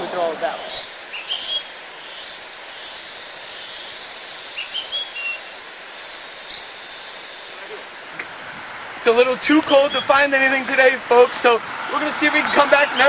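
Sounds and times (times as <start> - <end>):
outdoor hiss: 0.0 - 13.0
high whistled chirps: 0.5 - 7.8, 9.7 - 10.3.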